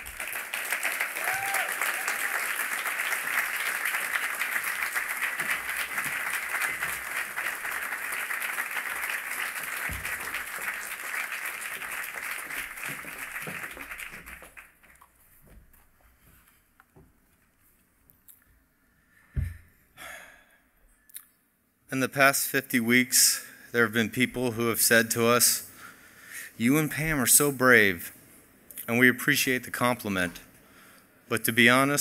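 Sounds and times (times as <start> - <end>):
audience applauding: 0.0 - 15.2.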